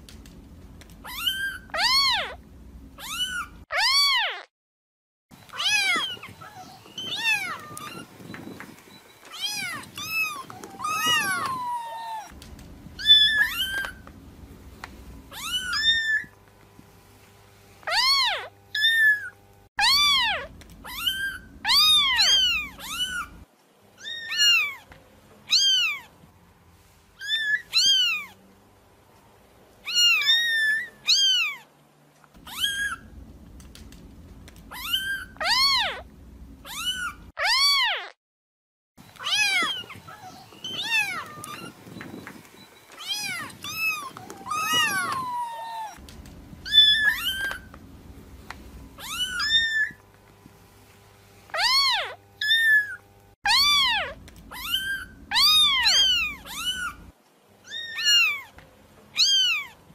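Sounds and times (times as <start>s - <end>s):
low background hum: 0.0s - 4.4s, 5.3s - 37.8s, 39.0s - 59.9s
kittens meowing: 1.0s - 2.4s, 3.0s - 4.5s, 5.5s - 8.3s, 9.3s - 12.4s, 13.0s - 14.0s, 15.3s - 16.3s, 17.9s - 23.4s, 24.0s - 24.9s, 25.5s - 26.1s, 27.2s - 28.4s, 29.8s - 31.7s, 32.4s - 38.1s, 39.2s - 41.8s, 42.9s - 50.0s, 51.5s - 59.8s.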